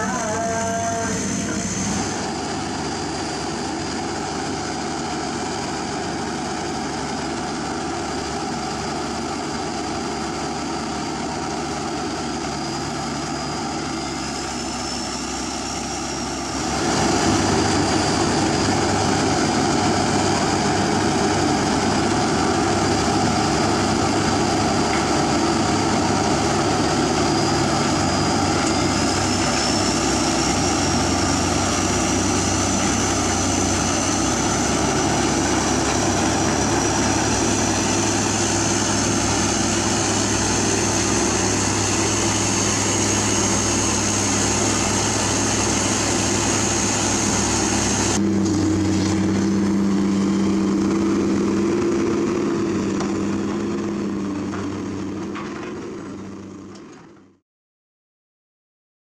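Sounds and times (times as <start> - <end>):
thin high whine: 0.0 - 2.3
excavator diesel engine running: 0.0 - 57.4.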